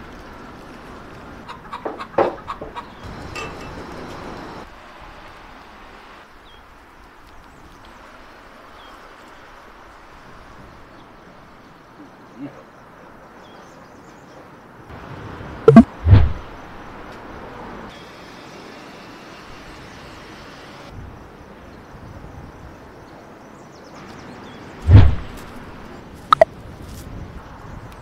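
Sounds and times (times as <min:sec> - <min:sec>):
heavy thumps: 0:24.9 - 0:25.3.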